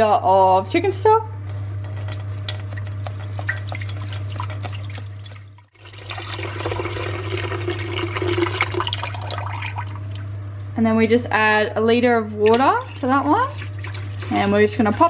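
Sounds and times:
steady low hum: 0:00.0 - 0:15.0
liquid pouring into metal pot: 0:01.5 - 0:10.3, 0:12.4 - 0:15.0.

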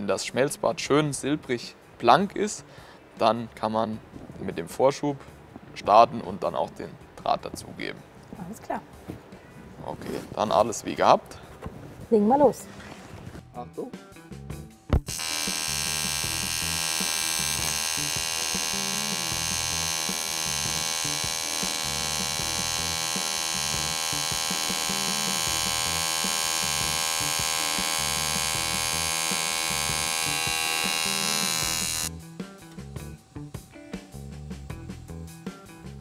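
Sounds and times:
welding arc humming: 0:15.0 - 0:32.2.

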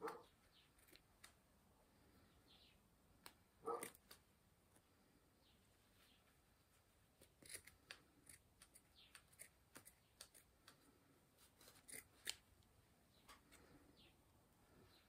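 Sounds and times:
small scissors snipping fabric: 0:03.2 - 0:04.2, 0:07.2 - 0:11.0, 0:11.6 - 0:12.5.

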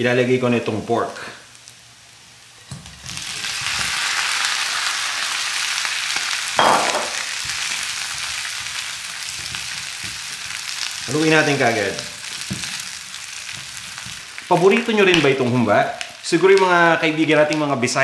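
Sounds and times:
pork sizzling in a wok: 0:00.8 - 0:18.0.

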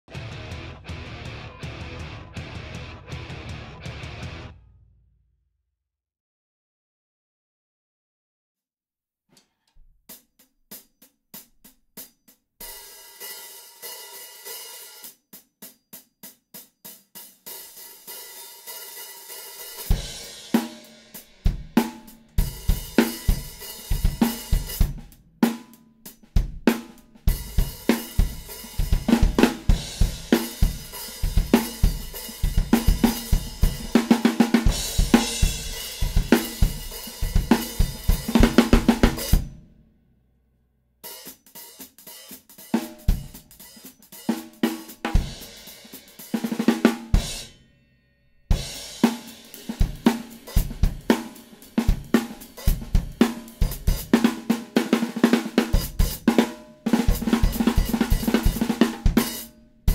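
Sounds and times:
bass drum and snare groove: 0:00.0 - 0:04.6, 0:19.6 - 0:39.7, 0:41.0 - 0:47.6, 0:48.5 - 0:59.9
hi-hats played with drumsticks: 0:10.1 - 0:39.6, 0:41.0 - 0:47.5, 0:48.5 - 0:59.9.

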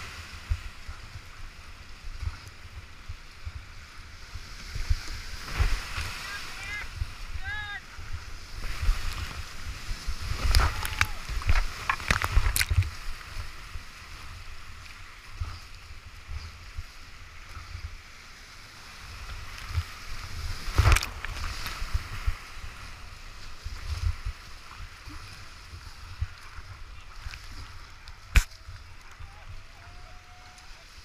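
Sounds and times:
paddle strokes and splashes: 0:00.0 - 0:31.0
whitewater rapids rushing: 0:05.5 - 0:12.8.

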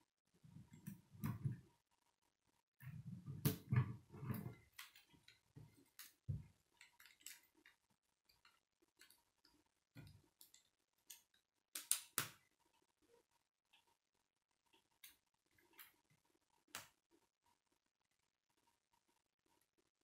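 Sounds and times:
plastic pieces clicking and tapping: 0:04.8 - 0:12.4
plastic pieces snapping: 0:10.3 - 0:12.4.

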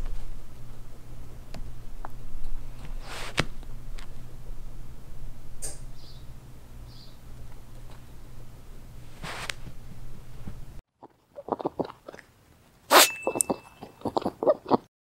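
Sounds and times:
low hum: 0:00.0 - 0:10.8
high ring: 0:12.9 - 0:14.0.

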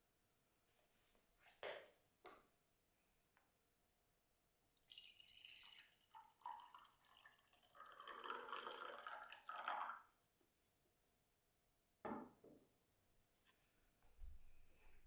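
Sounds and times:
coffee pouring into a mug: 0:04.8 - 0:10.1.

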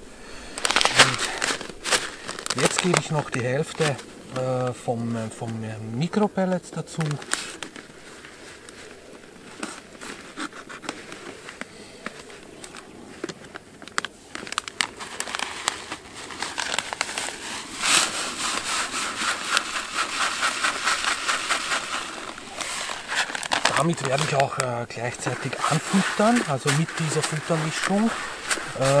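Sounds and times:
plastic bag crinkling: 0:00.0 - 0:06.2, 0:06.8 - 0:29.0
pellets pouring into plastic bucket: 0:00.5 - 0:04.6, 0:14.6 - 0:29.0.

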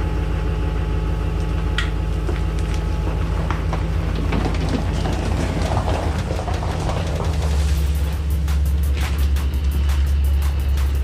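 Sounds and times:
pickup truck engine running: 0:00.0 - 0:11.0
tyres crunching on gravel: 0:02.2 - 0:09.9.

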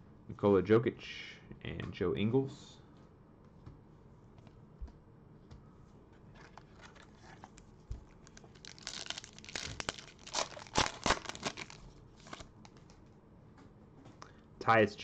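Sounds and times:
foil wrapper crinkling and tearing: 0:06.4 - 0:12.8.

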